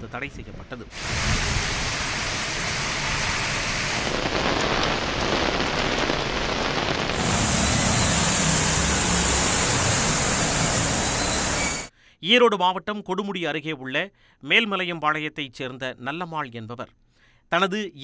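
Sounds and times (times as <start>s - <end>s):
heavy rain pouring: 1.0s - 11.9s.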